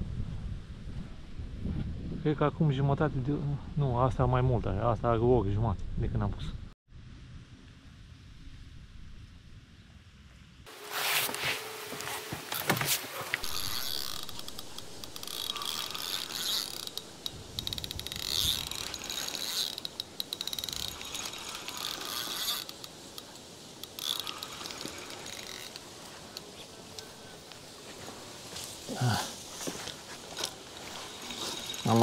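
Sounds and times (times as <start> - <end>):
fishing reel ratcheting: 13.4 - 27.2, 30.3 - 32.0.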